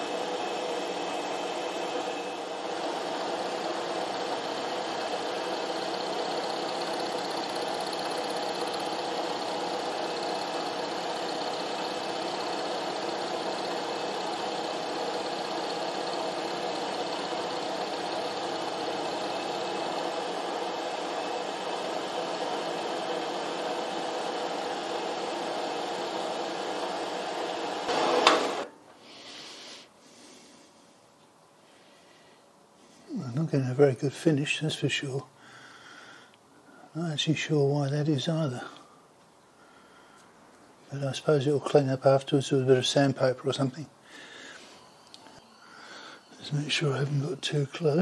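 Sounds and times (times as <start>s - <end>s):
milling machine cutting metal: 0.0s - 28.7s.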